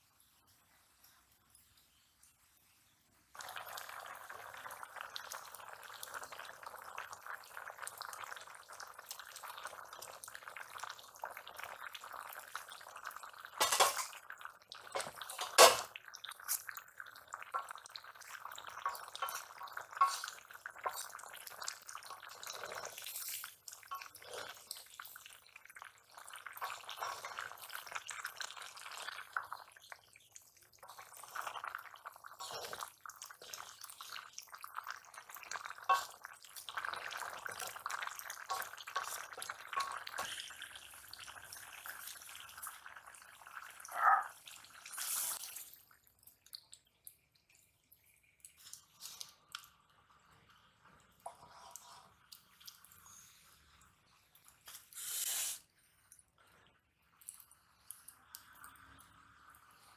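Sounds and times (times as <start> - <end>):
curry bubbling in a wok: 1.7 - 54.7, 55.9 - 59.9
wooden spatula stirring: 18.7 - 21.5, 35.9 - 36.1.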